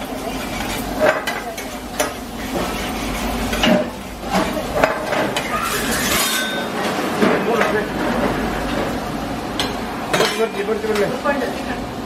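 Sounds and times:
metal tongs scraping a pan: 0.0s - 6.8s
steady sizzle: 0.0s - 12.0s.

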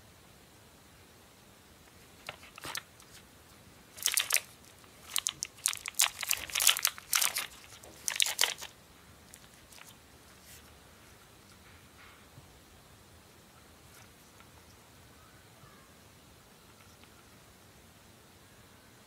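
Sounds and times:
plastic wrapper crinkling: 2.2s - 3.2s, 3.9s - 10.0s.

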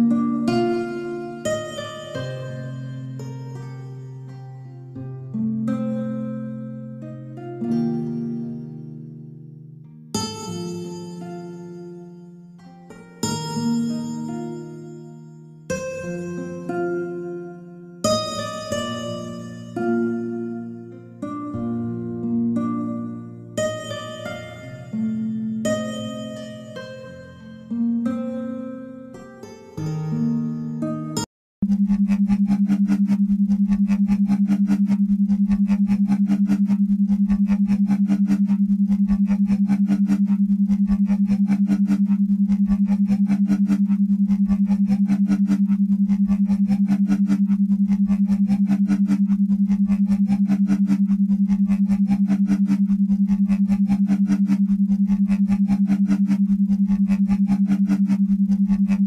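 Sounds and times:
low pulsing hum: 31.6s - 59.0s.

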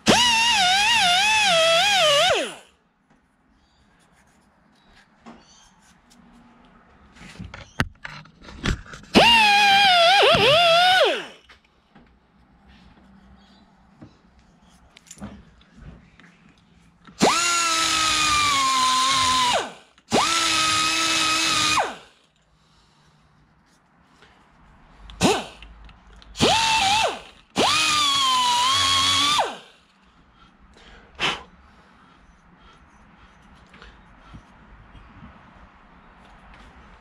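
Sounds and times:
die grinder whining: 0.0s - 2.7s, 9.1s - 11.4s, 17.2s - 22.1s, 26.4s - 29.8s.

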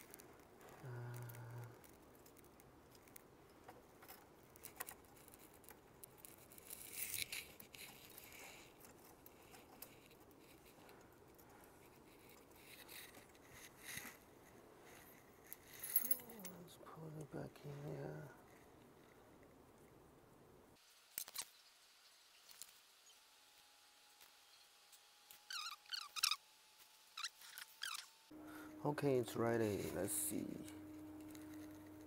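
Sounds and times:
small parts clicking and rustling: 0.0s - 19.9s, 21.1s - 21.7s, 22.4s - 22.8s, 29.6s - 32.0s.

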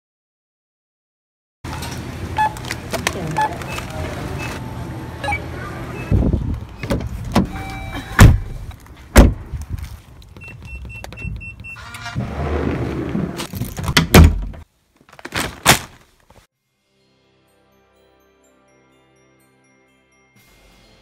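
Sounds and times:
short electronic beeps: 5.2s - 6.2s, 7.5s - 8.7s
car door thumps: 9.2s - 9.4s.

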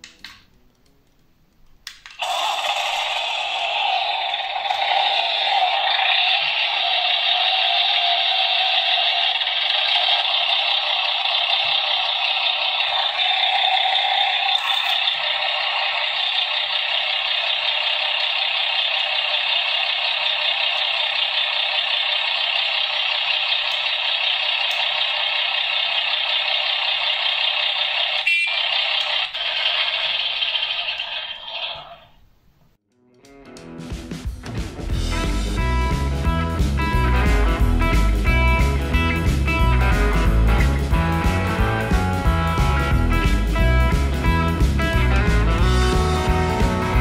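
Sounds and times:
click: 0.0s - 2.2s
simulated truck engine from loudspeaker: 2.2s - 31.9s, 35.4s - 47.0s.

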